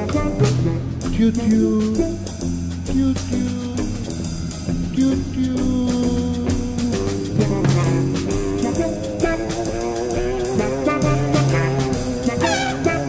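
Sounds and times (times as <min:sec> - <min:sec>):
saxophone playing: 0:00.0 - 0:02.5, 0:06.6 - 0:13.0
live band music: 0:00.0 - 0:13.0
voice chanting: 0:05.0 - 0:13.0.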